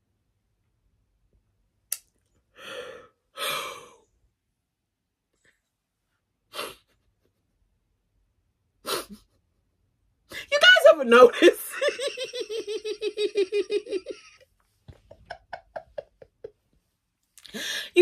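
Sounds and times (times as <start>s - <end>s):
person sighing and sniffing: 6.5s - 7.0s.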